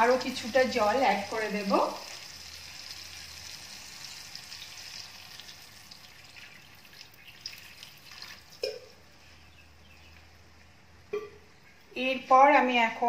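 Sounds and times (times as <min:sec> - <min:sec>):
fish sizzling in oil: 0:00.0 - 0:08.6
oil crackling: 0:00.0 - 0:08.9
water pouring into pan: 0:02.0 - 0:08.7.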